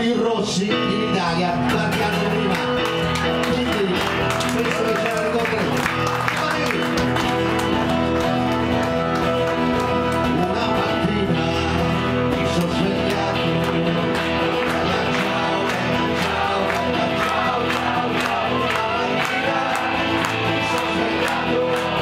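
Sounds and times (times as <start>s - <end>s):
acoustic guitars strummed: 0.1s - 22.0s
group singing: 10.3s - 22.0s.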